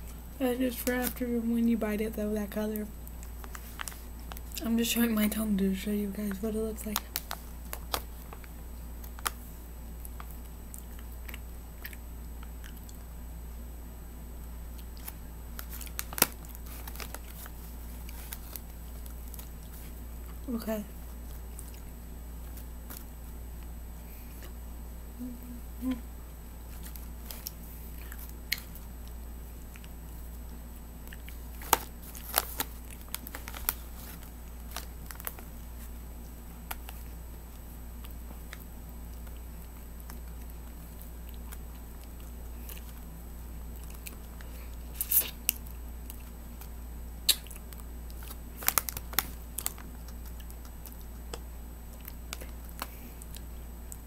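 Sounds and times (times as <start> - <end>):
steady low hum: 0.0 - 54.0
wet mouth clicks and smacks: 47.3 - 47.7.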